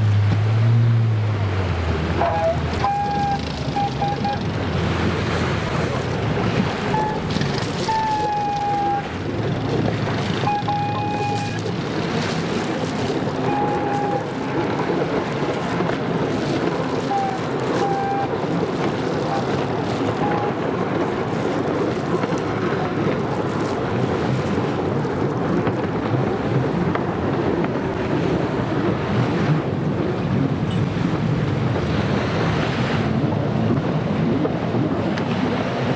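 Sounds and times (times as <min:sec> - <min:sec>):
jet skis racing on water: 0:00.0 - 0:35.9
small waves washing: 0:00.0 - 0:35.9
wind noise on microphone: 0:00.0 - 0:35.9
short high-pitched tones: 0:02.2 - 0:04.4, 0:06.9 - 0:07.3, 0:07.9 - 0:09.1, 0:10.4 - 0:11.6, 0:13.4 - 0:14.4, 0:17.0 - 0:18.3.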